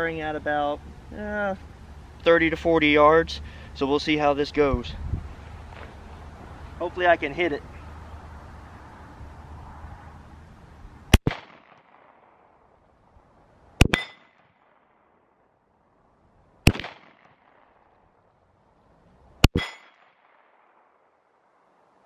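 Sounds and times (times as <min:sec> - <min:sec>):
second smaller report: 0:00.0 - 0:07.8
pistol shots: 0:11.1 - 0:12.4, 0:13.8 - 0:15.0, 0:16.6 - 0:17.9.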